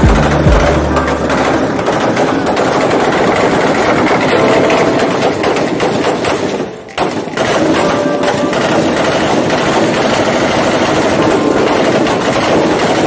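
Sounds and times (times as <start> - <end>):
rapid automatic gunfire: 0.0 - 13.0.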